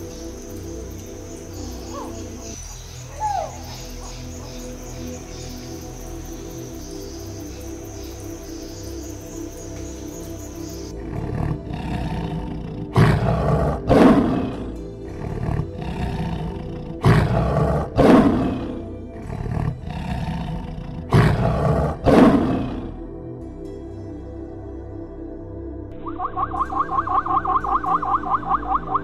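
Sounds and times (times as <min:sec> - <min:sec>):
lion roaring: 0:10.8 - 0:23.1.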